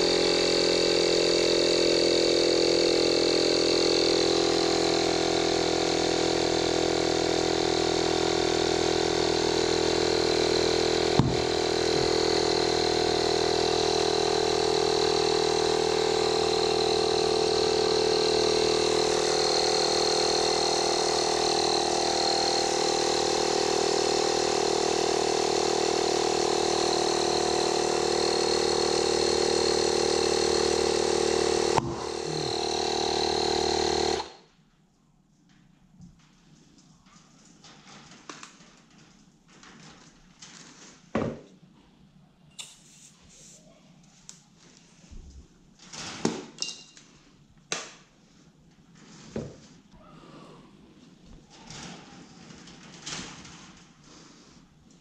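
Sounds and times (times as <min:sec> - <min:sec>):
air compressor running: 0:00.0 - 0:34.6, 0:49.3 - 0:55.0.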